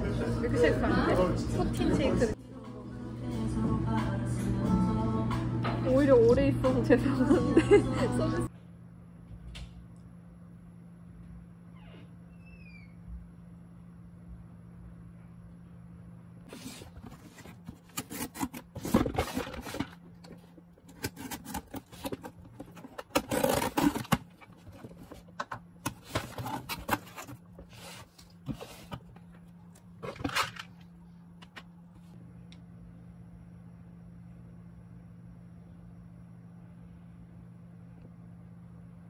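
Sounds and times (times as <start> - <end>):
faint hum: 0.0 - 39.0
cardboard box being torn open: 16.5 - 20.0, 20.9 - 24.8.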